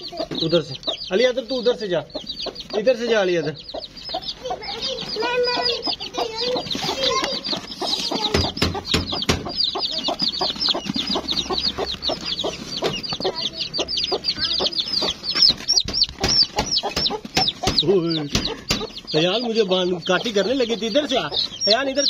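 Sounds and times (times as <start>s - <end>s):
chicks peeping: 0.0s - 22.0s
hen clucking: 0.0s - 22.0s
scuffling knocks: 4.8s - 13.6s, 14.5s - 19.1s.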